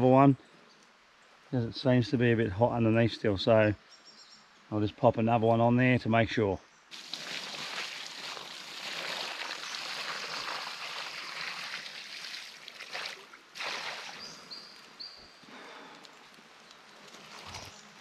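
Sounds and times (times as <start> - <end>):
water hissing on hot campfire: 6.9 - 18.0.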